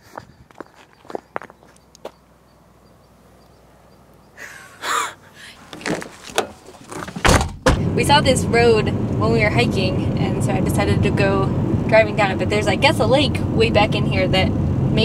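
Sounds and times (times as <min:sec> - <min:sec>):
car door opening: 0:05.6 - 0:07.9
car door shutting with a thump: 0:05.8 - 0:07.9.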